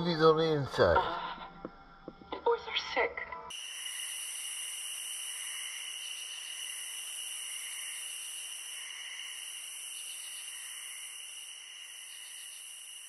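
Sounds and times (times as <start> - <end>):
soft pulsing insect call: 1.8 - 13.0
crickets chirping chorus: 3.5 - 13.0.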